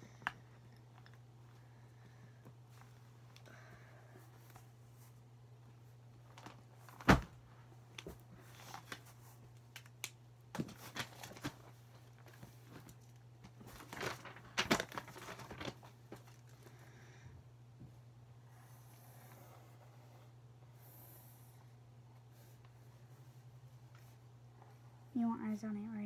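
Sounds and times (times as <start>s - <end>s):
paper rustling and crinkling: 8.0s - 9.9s, 10.5s - 16.7s.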